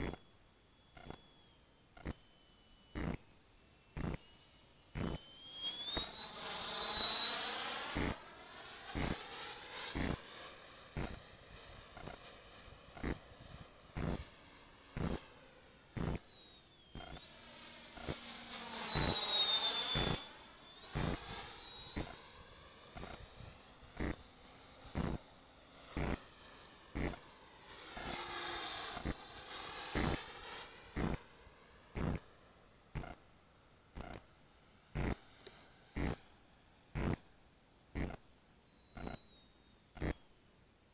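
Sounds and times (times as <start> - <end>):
model jet engine whine: 0.0 - 40.9
sharp clicks: 0.9 - 1.3, 2.0 - 2.2, 3.0 - 3.2, 4.0 - 4.2, 16.0 - 16.2, 17.0 - 17.2, 33.0 - 33.2, 34.0 - 34.2, 35.0 - 36.2, 37.0 - 37.2, 38.0 - 38.2, 39.0 - 39.2, 40.0 - 40.2.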